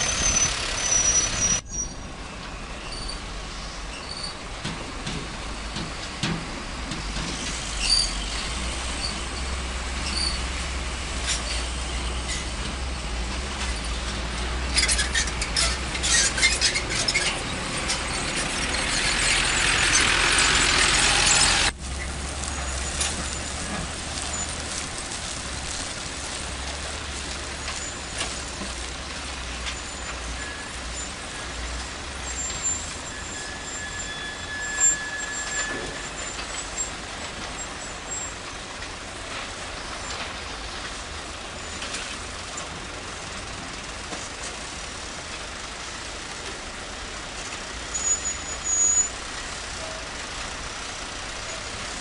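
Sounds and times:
diesel dump trucks rumbling: 0:00.0 - 0:52.0.

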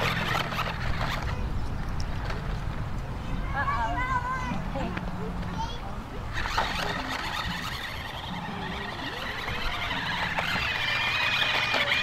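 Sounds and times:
toy car electric motor whining: 0:00.0 - 0:01.4, 0:06.3 - 0:12.0.

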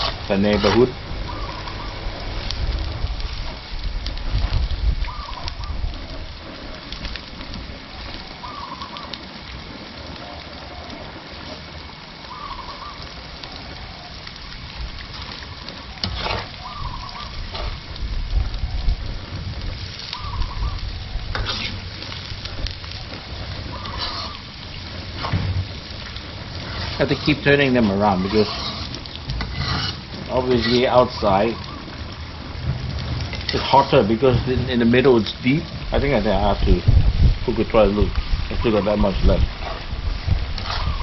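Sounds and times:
stirring knocks and scrapes: 0:00.0 - 0:01.0, 0:16.0 - 0:18.0, 0:21.3 - 0:31.2, 0:32.6 - 0:35.4, 0:39.5 - 0:41.0
shallots sizzling in hot oil: 0:00.0 - 0:41.0.

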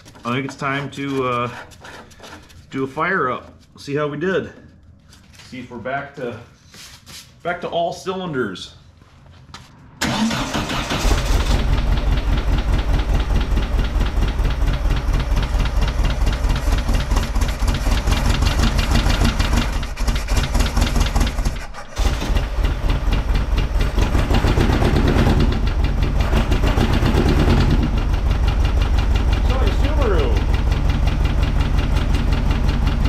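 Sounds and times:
misfiring car engine running: 0:10.0 - 0:33.0.

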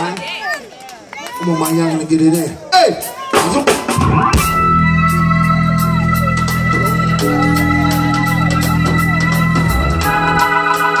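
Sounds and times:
organ chords: 0:03.9 - 0:11.0
cymbals ticking: 0:05.0 - 0:11.0.

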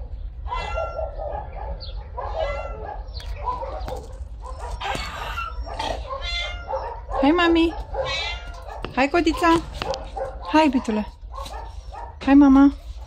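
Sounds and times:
cat meowing: 0:00.5 - 0:01.2, 0:02.3 - 0:02.9, 0:04.7 - 0:07.1, 0:07.9 - 0:08.8.

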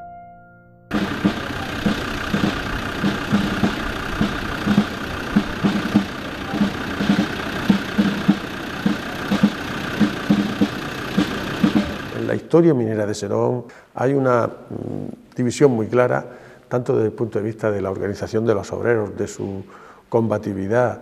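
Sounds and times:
vehicle engine running: 0:00.9 - 0:12.4.

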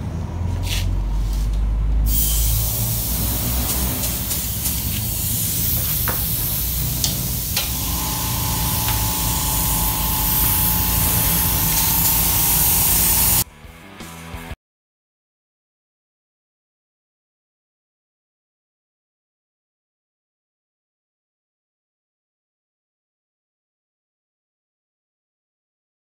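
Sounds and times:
spray gun hissing: 0:02.0 - 0:13.4
low hum: 0:06.4 - 0:13.4.

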